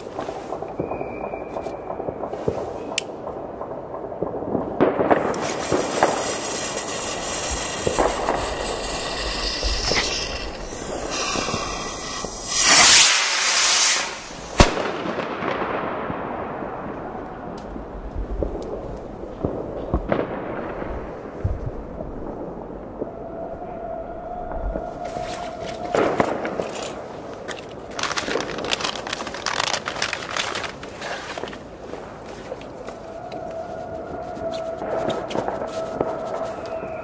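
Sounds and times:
distant fireworks banging and crackling: 0.0 - 37.0
falling whistle: 0.8 - 2.0, 35.8 - 37.0
firework bursting bang: 4.2 - 16.9
rocket launching whoosh: 5.1 - 15.6.

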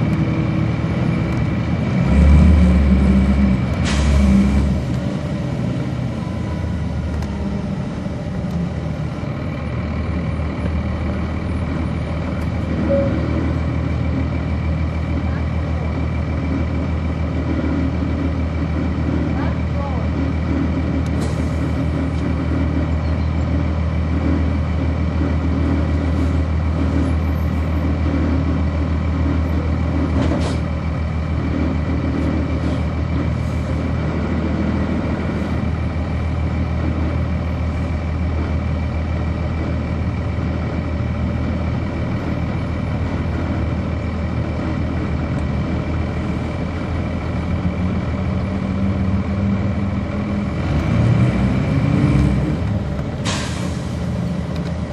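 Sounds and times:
bus diesel engine running: 0.0 - 54.9.

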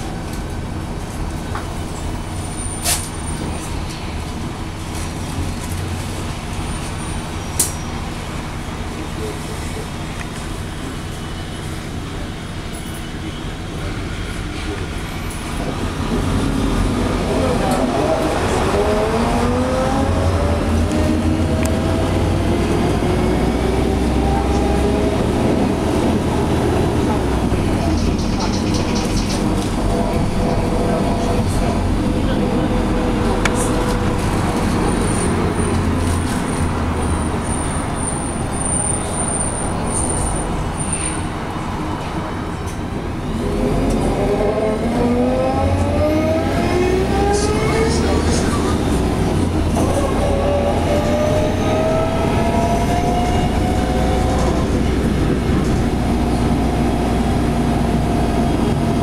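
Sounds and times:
bus engine and transmission whine: 0.0 - 59.0
rising engine whine: 15.6 - 28.0, 43.2 - 59.0.

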